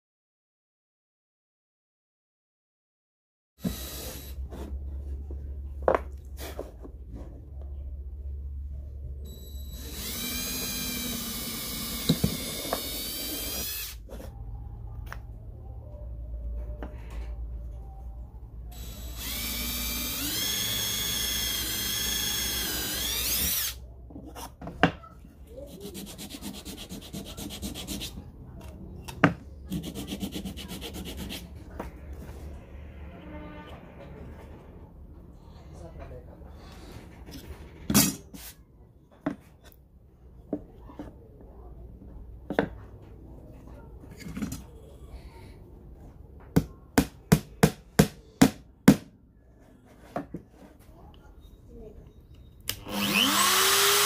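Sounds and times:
cordless drill drilling into plywood: 3.6 - 4.4, 9.7 - 14.0, 18.8 - 23.8, 52.8 - 54.0
sanding sponge rubbing on wood: 25.8 - 28.2
hammer striking nail into wood: 46.6 - 49.1.

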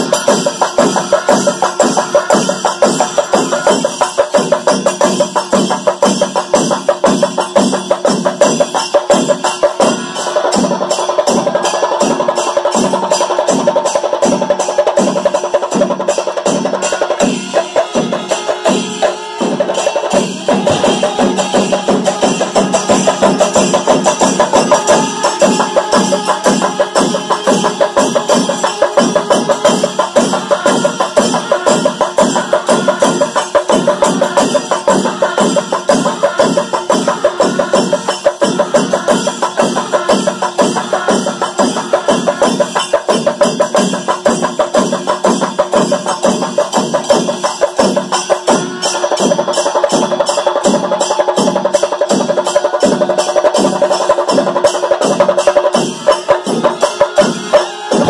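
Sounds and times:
cymbal clashes: 0.0 - 58.0
drums beaten in fast rhythm: 0.0 - 58.0
pipes and horns held notes: 16.9 - 43.5, 55.0 - 58.0.

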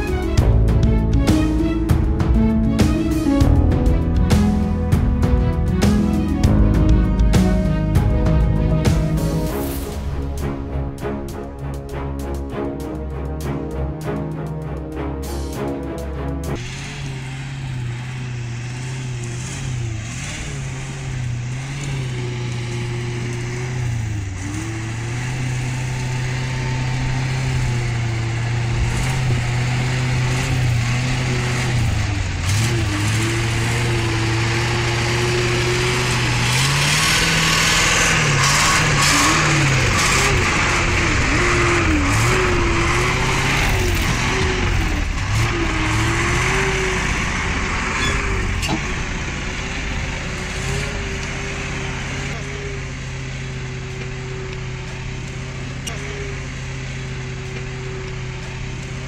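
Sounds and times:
truck engine labouring: 0.0 - 59.0
tyres churning mud: 15.1 - 59.0.

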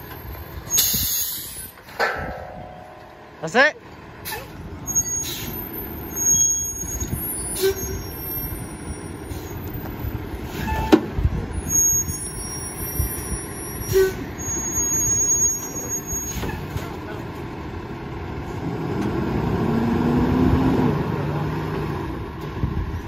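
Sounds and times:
sharp metal clank: 1.9 - 3.2.

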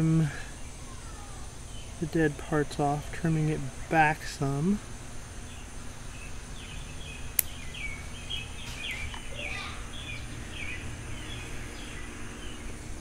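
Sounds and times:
birds chirping: 0.0 - 13.0
scissors snipping a twig: 7.4 - 7.6.

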